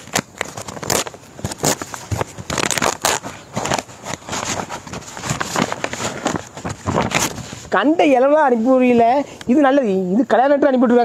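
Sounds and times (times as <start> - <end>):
paper envelope tearing and crinkling: 0.0 - 7.9.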